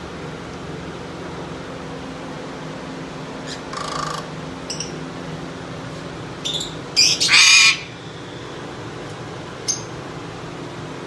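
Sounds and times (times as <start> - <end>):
parrot squawking: 6.4 - 8.0.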